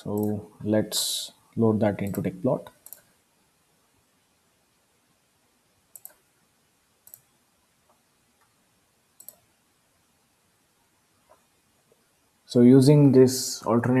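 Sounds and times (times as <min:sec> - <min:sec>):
computer mouse clicks: 0:00.1 - 0:00.4, 0:02.0 - 0:03.2, 0:05.9 - 0:06.3, 0:07.0 - 0:08.6, 0:09.2 - 0:09.5.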